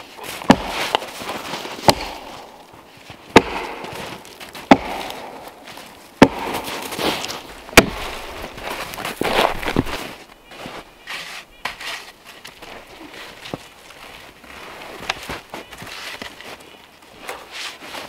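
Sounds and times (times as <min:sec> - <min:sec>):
snow crunching: 0:00.0 - 0:18.0
axe chopping log: 0:00.2 - 0:02.7, 0:03.3 - 0:08.4.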